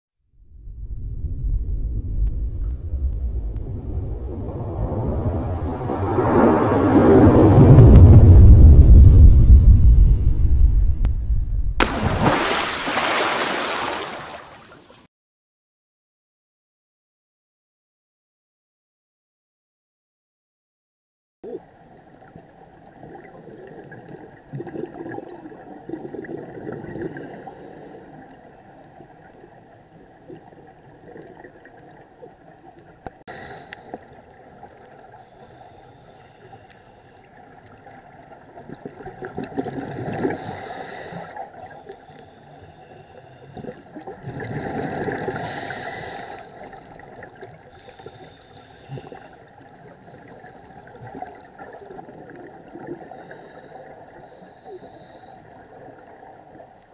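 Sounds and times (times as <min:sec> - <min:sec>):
diver's exhaled bubbles gurgling: 0:22.3 - 0:29.3, 0:37.6 - 0:41.6, 0:43.6 - 0:48.1.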